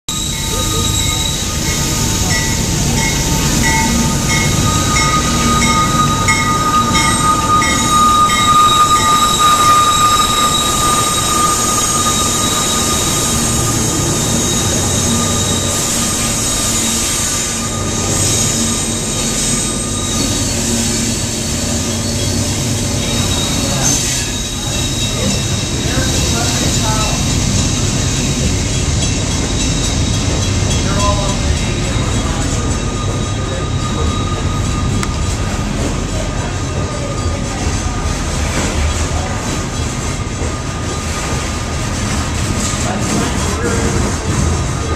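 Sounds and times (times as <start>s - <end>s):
high whine: 0.1s - 20.3s
diesel locomotives passing: 0.1s - 44.9s.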